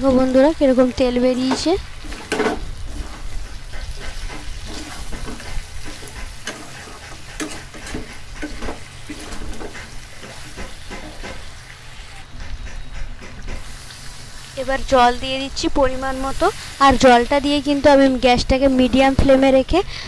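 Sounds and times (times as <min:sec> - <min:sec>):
oil sizzling: 0:00.0 - 0:20.0
metal spatula scraping a wok: 0:01.5 - 0:12.2.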